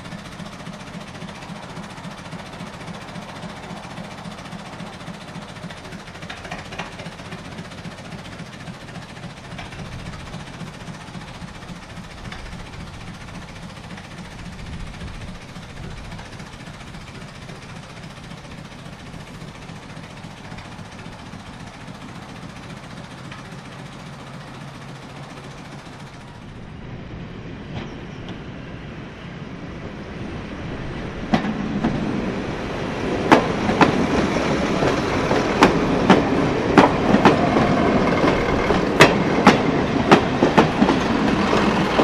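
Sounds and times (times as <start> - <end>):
locomotive rumbling: 0.0 - 42.0.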